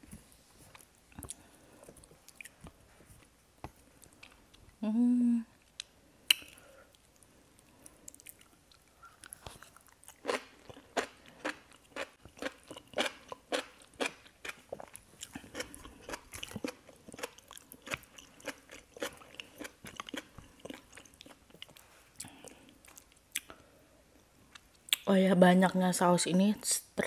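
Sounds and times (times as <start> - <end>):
chewing with wet mouth clicks: 0.7 - 2.6, 5.6 - 23.6.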